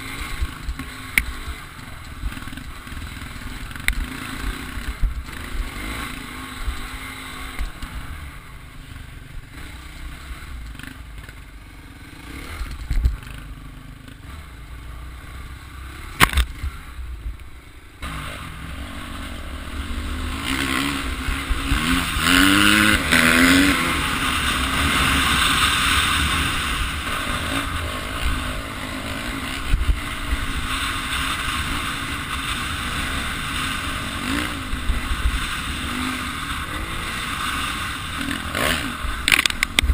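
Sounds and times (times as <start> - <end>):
motorcycle engine running: 0.0 - 39.9
knocks and clatter from trail: 12.4 - 13.4, 16.1 - 16.8, 20.5 - 39.9.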